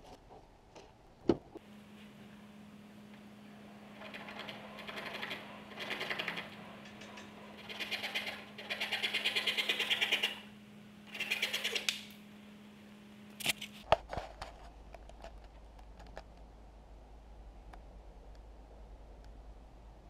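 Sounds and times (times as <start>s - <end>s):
hand saw cutting wood: 4.0s - 10.4s.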